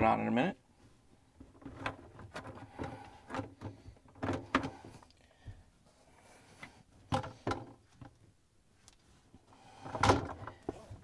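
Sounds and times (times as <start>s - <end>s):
plastic scraping: 1.4s - 5.1s.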